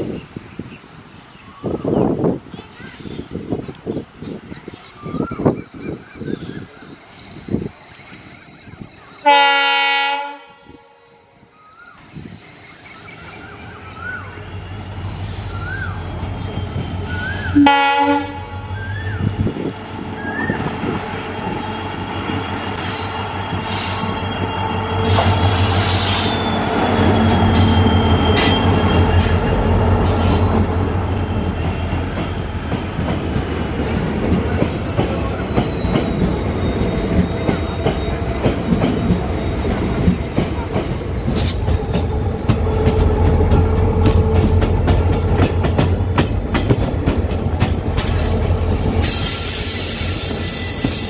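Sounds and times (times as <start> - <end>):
train horn: 9.2 - 11.3, 17.5 - 19.1
diesel locomotive engine drone: 11.2 - 51.0
high wheel squeal: 12.8 - 39.9, 40.9 - 51.0
wheels clicking over rail joints: 37.1 - 48.4.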